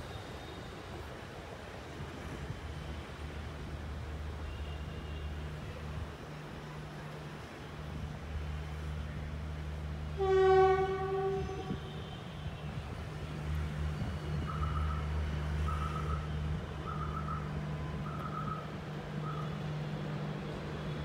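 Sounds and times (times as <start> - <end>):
distant locomotive horn blast: 10.0 - 13.6.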